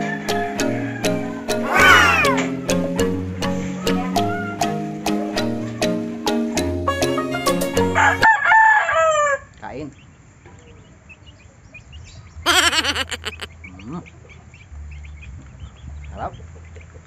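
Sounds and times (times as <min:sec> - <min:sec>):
rooster crowing: 0:12.5 - 0:13.5
chickens clucking softly: 0:12.5 - 0:14.7.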